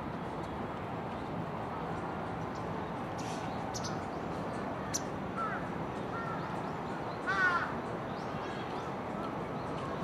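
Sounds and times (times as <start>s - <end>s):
steady background hiss: 0.0s - 10.0s
bird calls: 2.4s - 10.0s.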